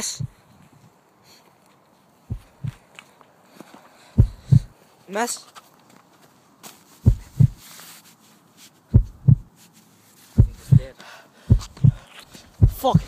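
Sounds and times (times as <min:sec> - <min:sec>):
heartbeat thumps: 0:00.0 - 0:00.4, 0:02.3 - 0:02.8, 0:04.2 - 0:04.7, 0:07.0 - 0:07.6, 0:08.9 - 0:09.5, 0:10.3 - 0:13.0.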